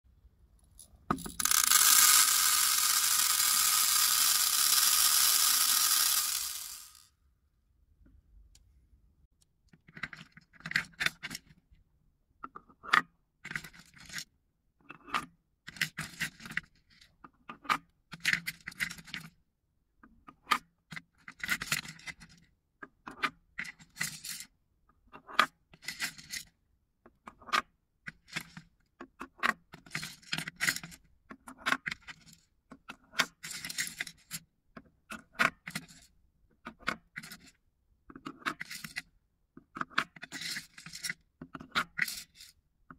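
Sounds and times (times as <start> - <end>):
wooden scoop scraping wooden balls: 1.2 - 7.0.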